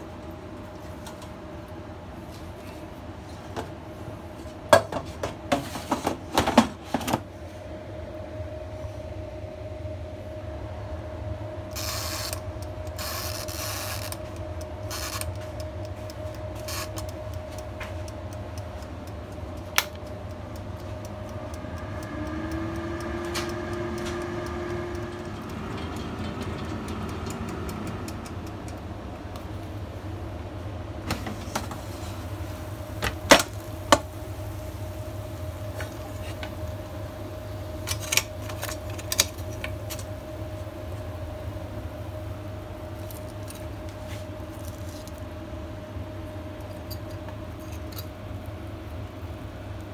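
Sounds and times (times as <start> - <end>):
air fryer fan hum: 0.0 - 49.9
timer dial ratcheting: 11.8 - 28.8.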